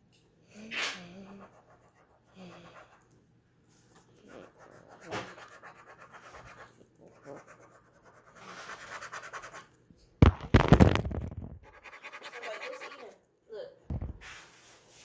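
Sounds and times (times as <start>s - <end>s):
phone rubbing against clothing: 4.2s - 9.6s.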